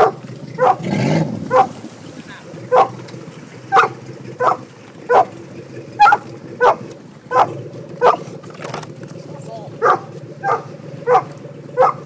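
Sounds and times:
dog barking: 0:00.0 - 0:00.8, 0:01.5 - 0:01.7, 0:02.7 - 0:03.0, 0:03.7 - 0:05.3, 0:06.0 - 0:08.2, 0:09.8 - 0:12.0.

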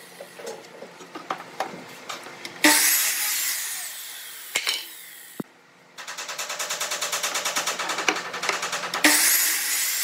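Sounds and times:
miter saw cutting wood: 0:02.6 - 0:05.4, 0:09.0 - 0:10.0.

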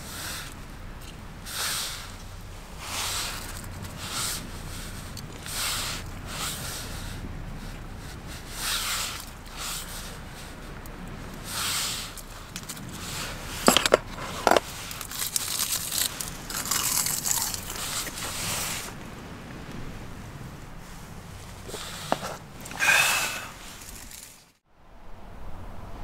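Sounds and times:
rustling and scraping of handling: 0:00.0 - 0:24.6.

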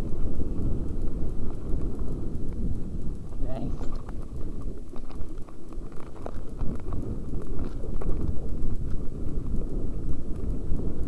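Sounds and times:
tyres and wind rumble: 0:00.0 - 0:11.0.

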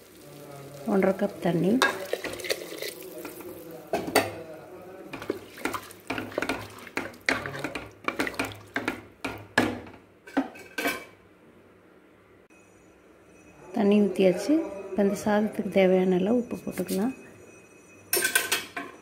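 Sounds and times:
spatula scraping a pot: 0:05.1 - 0:09.0.

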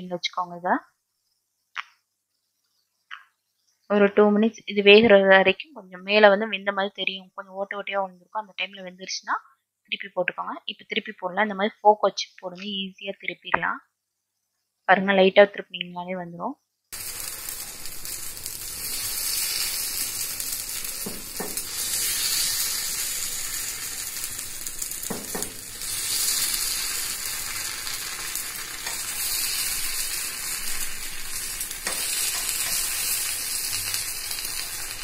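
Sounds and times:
batter sizzling in oil: 0:16.8 - 0:35.0
fork clicking on pan: 0:31.8 - 0:33.1.

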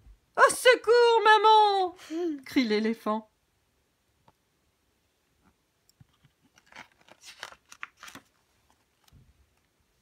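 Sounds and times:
paper page rustling: 0:06.1 - 0:09.7.

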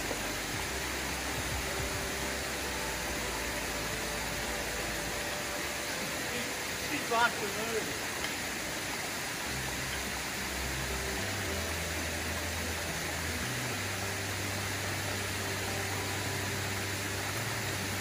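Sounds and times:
creek flowing over stones: 0:00.0 - 0:18.0.

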